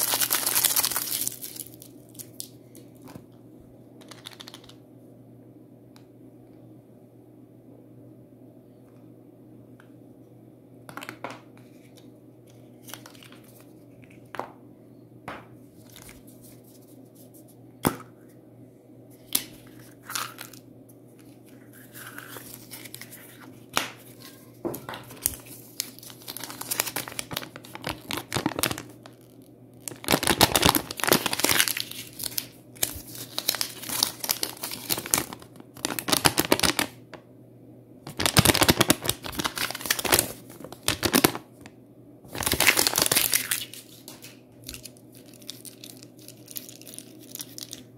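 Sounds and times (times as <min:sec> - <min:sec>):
wrapping paper crinkling: 0:00.0 - 0:02.9, 0:19.2 - 0:20.6, 0:21.2 - 0:37.0, 0:38.1 - 0:41.6, 0:42.3 - 0:47.9.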